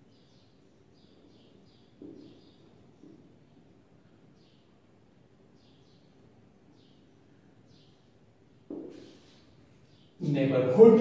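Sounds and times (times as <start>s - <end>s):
marker squeaking on whiteboard: 8.7s - 10.2s.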